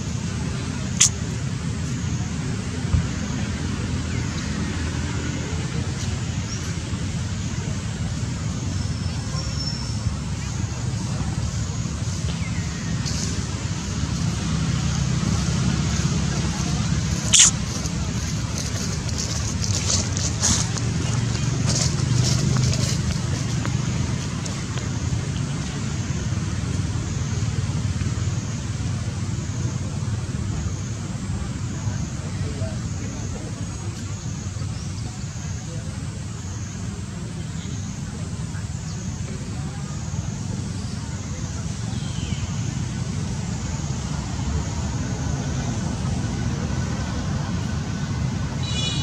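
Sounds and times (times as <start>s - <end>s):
low outdoor rumble: 0.0s - 49.0s
high-pitched call: 17.3s - 17.6s.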